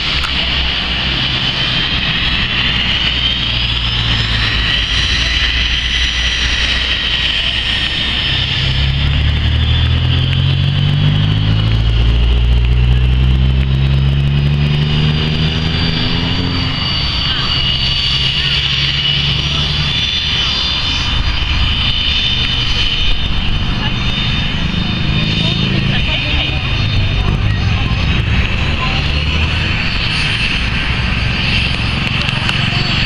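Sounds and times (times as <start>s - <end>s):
deep engine drone: 0.0s - 33.0s
high jet engine whine: 0.0s - 33.0s.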